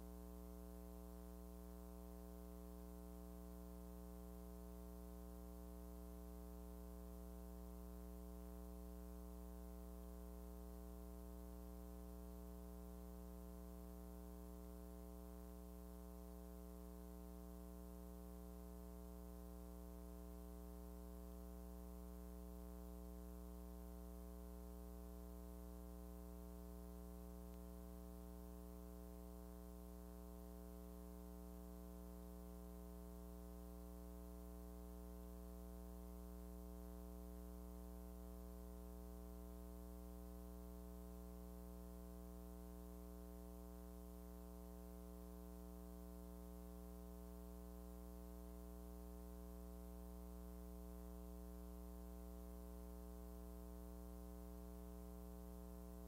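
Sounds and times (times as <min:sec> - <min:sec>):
low electrical hum: 0:00.0 - 0:56.0.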